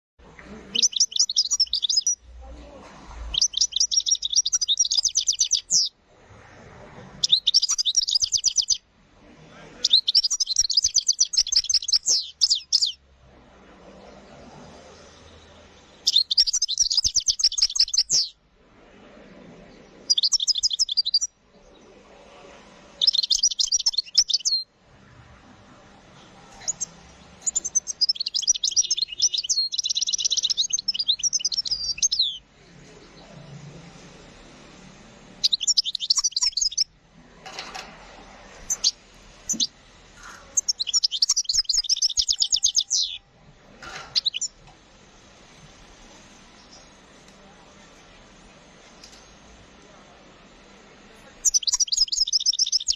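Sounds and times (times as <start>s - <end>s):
bird twittering song: 0.7s - 2.2s, 3.2s - 5.9s, 7.2s - 8.8s, 9.8s - 13.0s, 15.0s - 18.4s, 20.0s - 21.9s, 23.0s - 24.7s, 26.5s - 33.4s, 35.4s - 36.9s, 38.5s - 43.3s, 44.0s - 44.6s, 51.4s - 52.9s.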